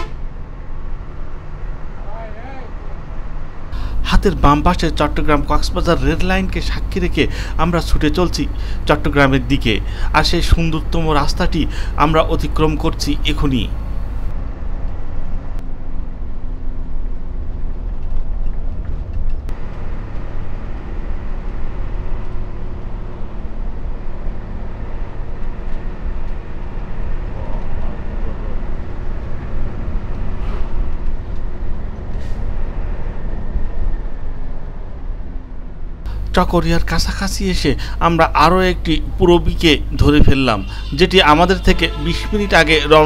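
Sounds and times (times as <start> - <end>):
bus engine and road rumble: 0.0 - 43.0.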